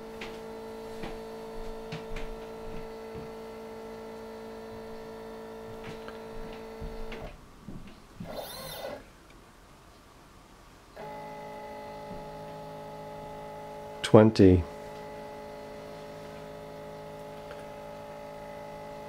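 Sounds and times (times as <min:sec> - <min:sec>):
rising and falling motor whine: 0:08.2 - 0:09.0, 0:11.0 - 0:19.0
stepper motors whining: 0:08.2 - 0:09.0.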